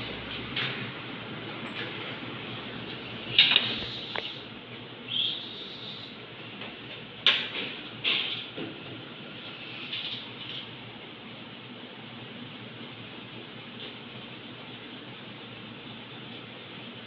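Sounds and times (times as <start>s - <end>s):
steady hiss: 2.3s - 6.5s.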